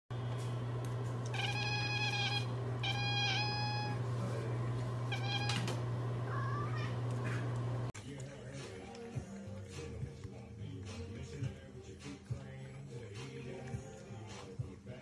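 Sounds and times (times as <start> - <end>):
cat meowing: 1.3 - 4.0, 5.1 - 7.0.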